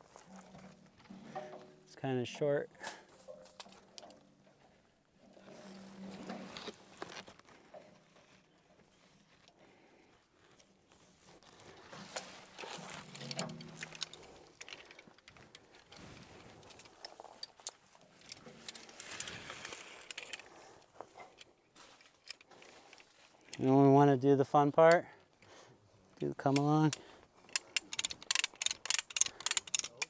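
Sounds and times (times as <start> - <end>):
clicks and clinks of gear: 11.4 - 23.7, 26.4 - 30.0.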